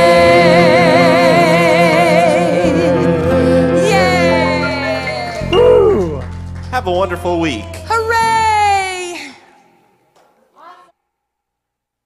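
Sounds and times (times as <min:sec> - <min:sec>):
voices singing with vibrato: 0:00.0 - 0:06.2
guitar and bass accompaniment: 0:00.0 - 0:08.9.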